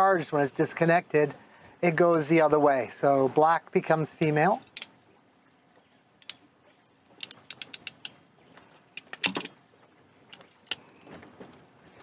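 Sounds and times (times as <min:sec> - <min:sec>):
clicks of handling wire connectors: 0:09.0 - 0:09.6.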